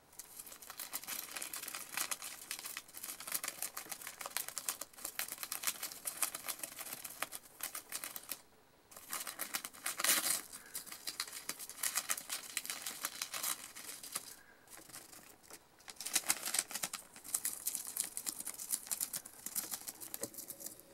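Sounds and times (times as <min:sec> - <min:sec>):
gerbil gnawing paper: 0:00.2 - 0:20.9.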